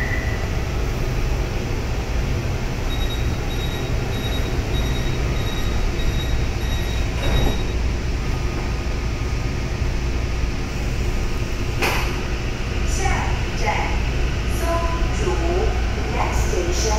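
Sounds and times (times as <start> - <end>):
train humming: 0.0 - 16.9
short high beeps: 2.9 - 7.7
sliding doors shutting: 3.2 - 8.9.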